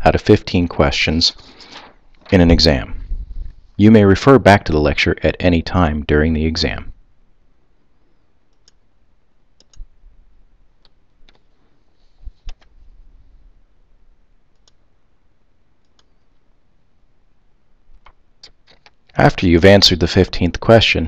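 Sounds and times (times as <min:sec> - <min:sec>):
computer mouse buttons clicking: 0:09.6 - 0:09.9.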